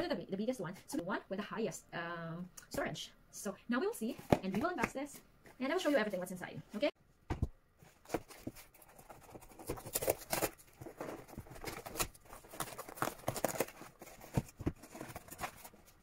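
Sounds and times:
cardboard tearing and rustling: 7.9 - 16.0.

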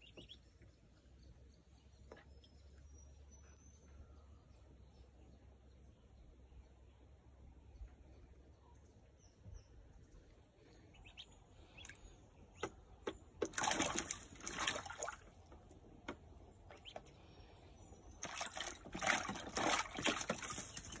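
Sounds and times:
duckling splashing in water: 11.8 - 12.0, 12.6 - 17.2, 18.1 - 21.0
water drips: 12.6 - 17.1.

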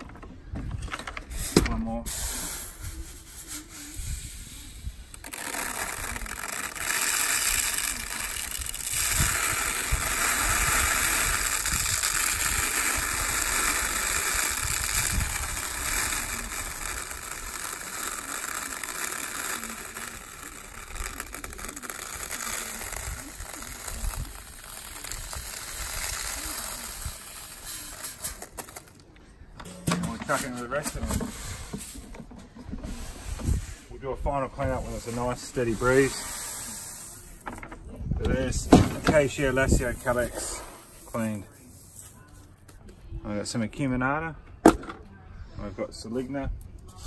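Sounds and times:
seeds pattering as they fall: 5.1 - 29.0.

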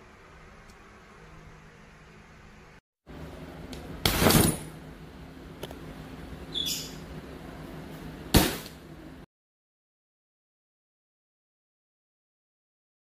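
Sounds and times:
umbrella springing open and shut: 4.0 - 4.8.

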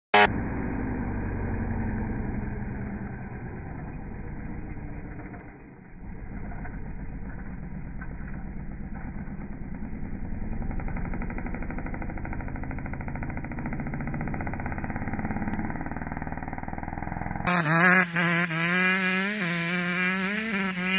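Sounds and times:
dirt bike engine running: 0.1 - 20.9.

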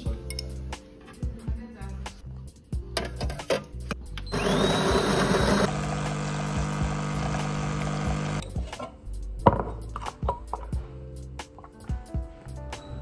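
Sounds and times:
coffee beans grinding: 4.3 - 8.4
espresso machine pump hum: 4.3 - 8.4
espresso pouring into a glass: 4.5 - 8.4.

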